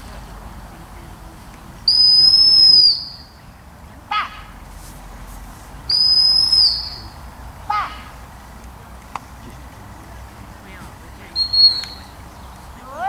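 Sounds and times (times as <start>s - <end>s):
short falling whistle chirp: 1.9s - 3.2s, 5.9s - 7.1s
high whistle blasts: 1.9s - 3.4s, 5.9s - 7.2s, 11.3s - 12.2s.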